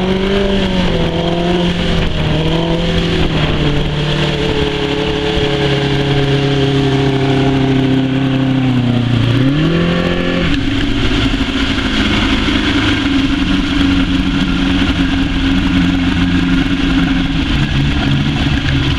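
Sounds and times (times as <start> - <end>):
motorboat engine running: 0.0 - 18.9
water rushing past: 0.0 - 18.9
wind: 0.0 - 18.9.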